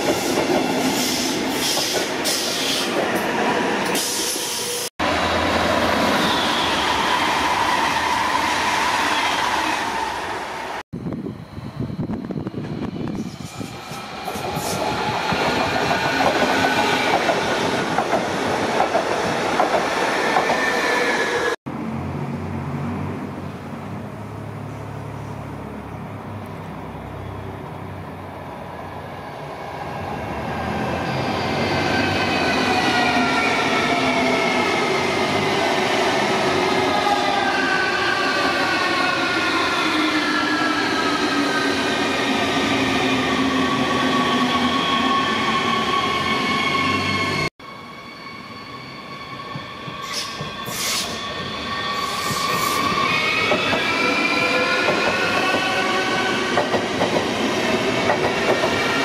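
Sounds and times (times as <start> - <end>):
electric train running by: 29.2 - 59.0.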